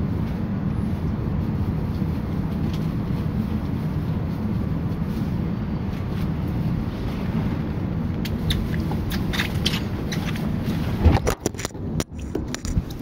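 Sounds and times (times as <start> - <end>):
electric train rumbling: 0.0 - 13.0.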